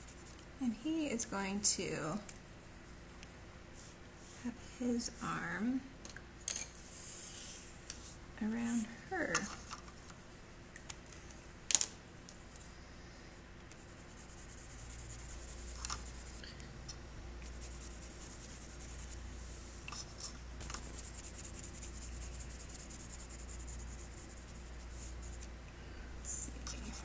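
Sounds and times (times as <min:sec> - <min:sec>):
pencil scratching on paper: 0:13.8 - 0:16.4, 0:17.4 - 0:19.2, 0:20.0 - 0:25.5, 0:26.6 - 0:27.0.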